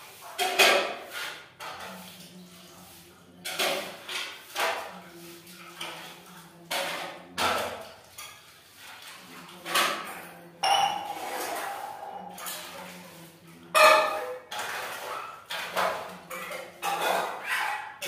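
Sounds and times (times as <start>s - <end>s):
ringing tone: 10.6s - 11.2s.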